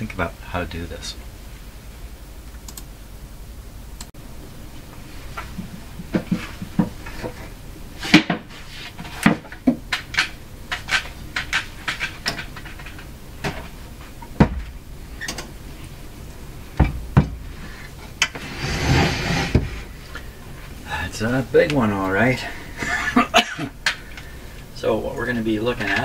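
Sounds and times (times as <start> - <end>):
cabinet scraping across wood: 18.3 - 19.9.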